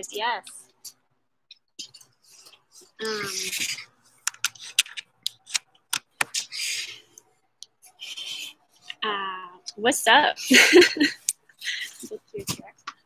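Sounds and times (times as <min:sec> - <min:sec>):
fingers rubbing on phone: 0:01.8 - 0:07.1, 0:07.8 - 0:09.0
sharp clicks and taps: 0:04.2 - 0:06.4.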